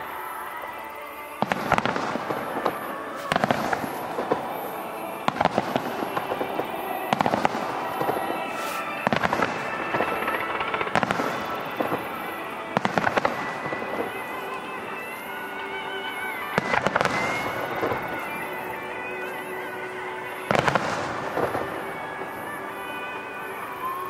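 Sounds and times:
fireworks crackling: 0.0s - 24.0s
music playing: 0.0s - 24.0s
fireworks shells bursting: 1.4s - 24.0s.

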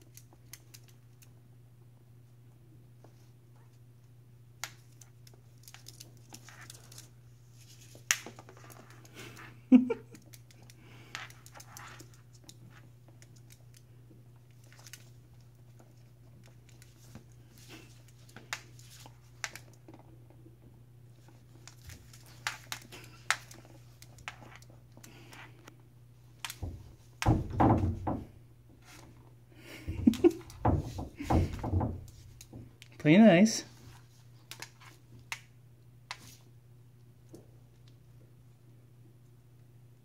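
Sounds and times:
claws and beak tapping floor: 0.0s - 1.4s, 4.6s - 33.0s.

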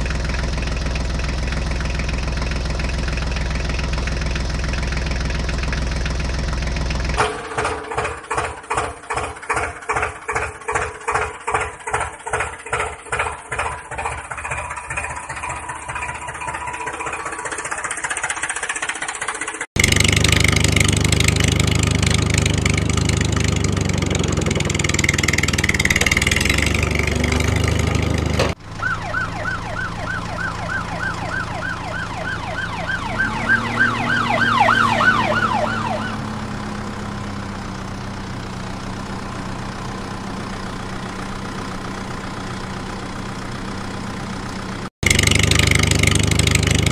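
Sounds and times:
diesel engine chugging: 0.0s - 46.9s
steady engine noise: 0.0s - 46.9s
warbling siren-like tone: 28.7s - 36.4s.

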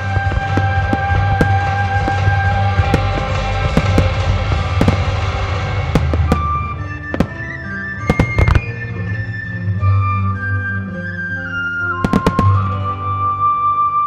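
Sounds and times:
fireworks bangs: 0.0s - 9.5s, 12.0s - 13.4s
fireworks crackling: 0.0s - 13.7s
background music: 0.0s - 14.0s.

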